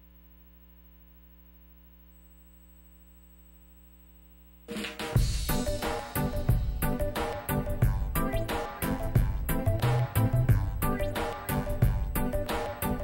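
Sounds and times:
faint electrical hum: 0:00.0 - 0:13.0
loud theme music: 0:04.7 - 0:13.0.

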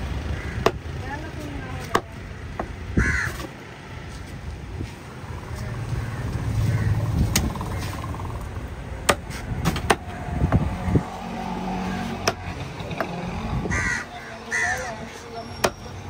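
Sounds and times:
road traffic: 0:00.0 - 0:16.0
cleaver chopping on wooden block: 0:09.1 - 0:10.1, 0:12.2 - 0:12.4.

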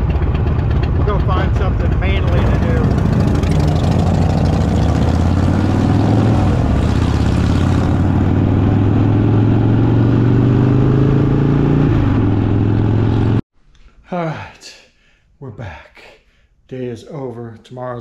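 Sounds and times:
motorcycle engine and exhaust: 0:00.0 - 0:13.4
wind and road rush: 0:00.0 - 0:13.4.

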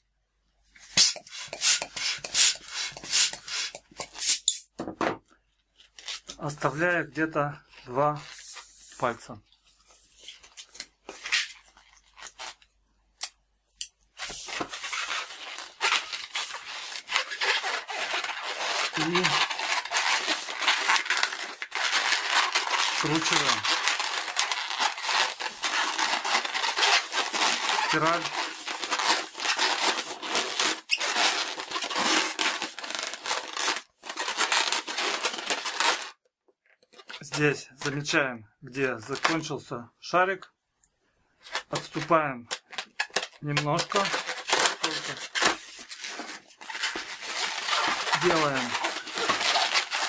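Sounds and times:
balloon rubber squeaks and snaps: 0:00.8 - 0:04.8, 0:14.1 - 0:36.2, 0:41.4 - 0:50.0
hands rubbing squeaky balloon: 0:00.8 - 0:04.8, 0:14.2 - 0:36.1, 0:41.5 - 0:50.0.

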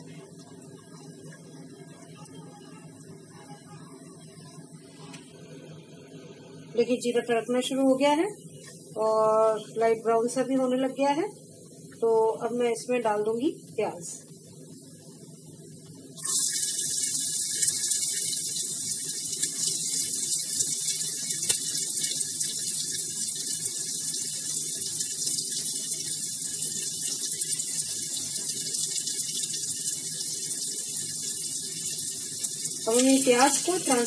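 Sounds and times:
onion sizzling in oil: 0:16.2 - 0:34.0.

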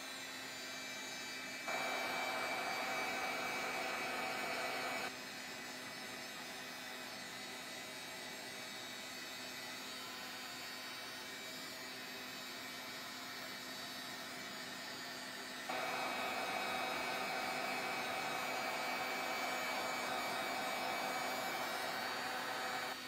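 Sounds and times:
heat tool blowing: 0:01.6 - 0:05.1, 0:15.6 - 0:23.0.

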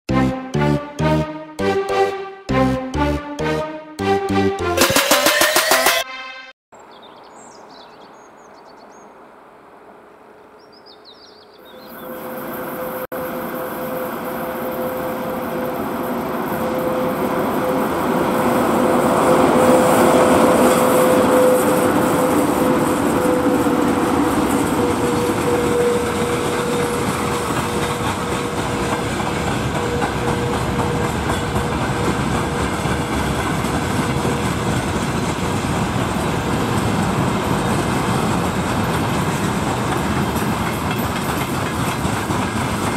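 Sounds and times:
faint birdsong: 0:06.8 - 0:09.3, 0:10.3 - 0:12.4
electric locomotive hum: 0:12.0 - 0:42.9
train wheels rumbling: 0:13.2 - 0:42.9
wagons clickety-clack on rails: 0:16.0 - 0:42.9.

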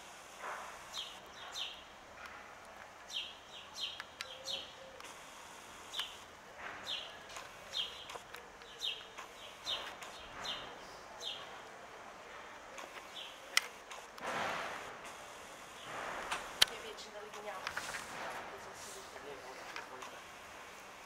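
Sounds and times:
small birds chirping: 0:00.8 - 0:11.7, 0:12.5 - 0:14.1, 0:15.1 - 0:18.0.

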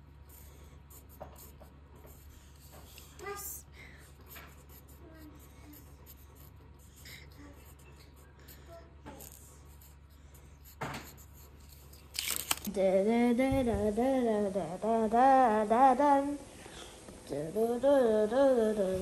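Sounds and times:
pencil scratching on paper: 0:00.0 - 0:03.4, 0:04.0 - 0:12.1
person humming: 0:17.2 - 0:19.0.

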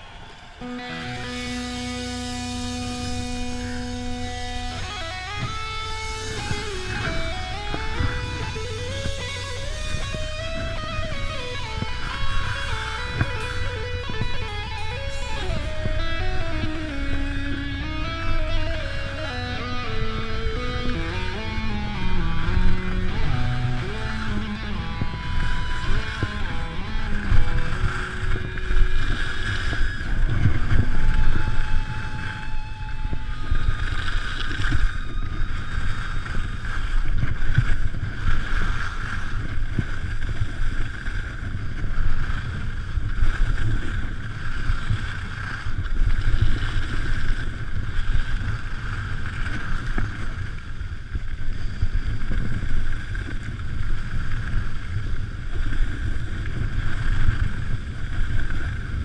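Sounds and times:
wind rushing over microphone: 0:00.0 - 0:59.0
skis hissing over snow: 0:01.2 - 0:17.5.

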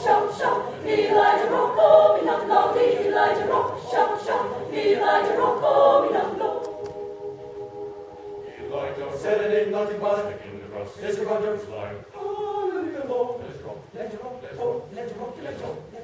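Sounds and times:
mixed choir singing a cappella: 0:00.0 - 0:12.0.

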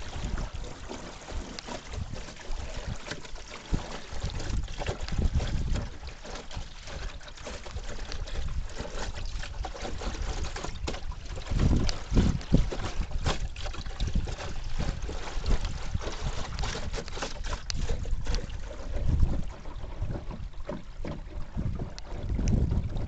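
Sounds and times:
water splashing along boat hull: 0:00.0 - 0:23.0
wind gusts buffeting microphone: 0:17.7 - 0:20.6, 0:21.4 - 0:23.0.

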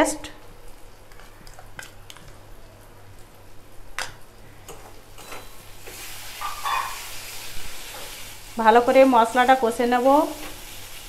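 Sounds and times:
paste sizzling in hot oil: 0:05.7 - 0:11.0.

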